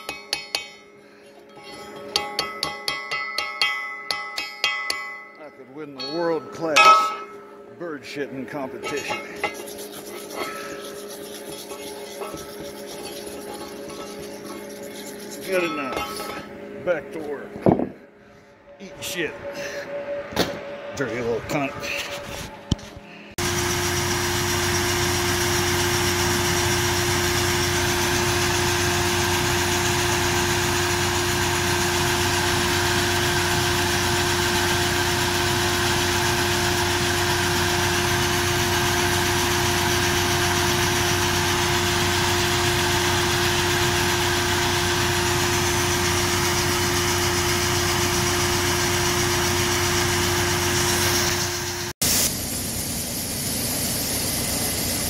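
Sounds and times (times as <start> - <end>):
tractor engine running: 20.8 - 55.0.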